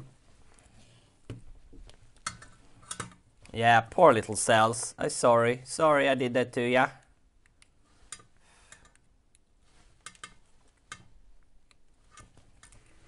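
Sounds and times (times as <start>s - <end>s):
tools clicking and tapping: 2.2s - 3.3s, 10.0s - 11.1s.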